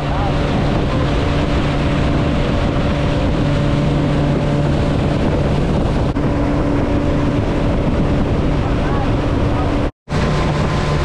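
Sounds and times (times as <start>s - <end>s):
motorboat engine humming: 0.0s - 11.0s
water spray along hull: 0.0s - 11.0s
wind rushing: 0.0s - 11.0s.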